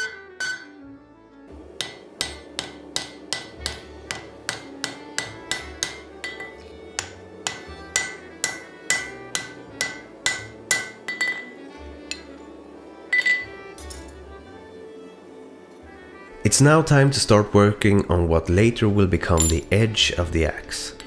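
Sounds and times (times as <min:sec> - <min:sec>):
anvil ringing: 0:00.0 - 0:00.8, 0:01.8 - 0:12.3, 0:13.1 - 0:14.1, 0:19.2 - 0:19.8
hammer striking steel on anvil: 0:00.0 - 0:00.8, 0:01.6 - 0:12.3, 0:13.1 - 0:14.0, 0:19.2 - 0:19.8.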